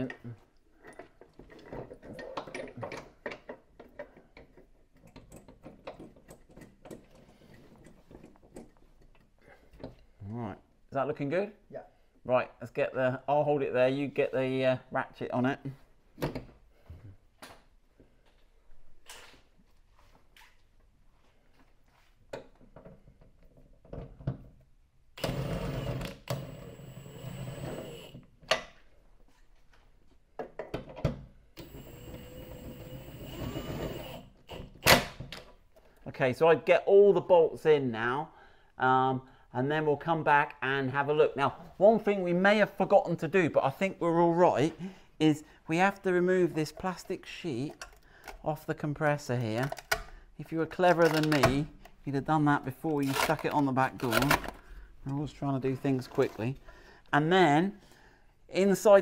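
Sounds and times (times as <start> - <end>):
powered ratchet whining: 31.6 - 34.2.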